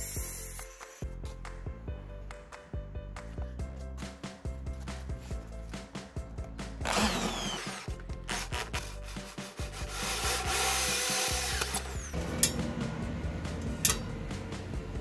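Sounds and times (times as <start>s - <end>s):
drill hole saw cutting metal: 6.9s - 8.5s, 9.9s - 12.2s.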